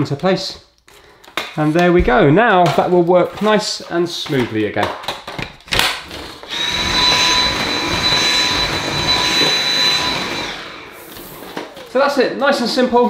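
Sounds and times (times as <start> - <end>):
vacuum cleaner whining: 6.1 - 13.0.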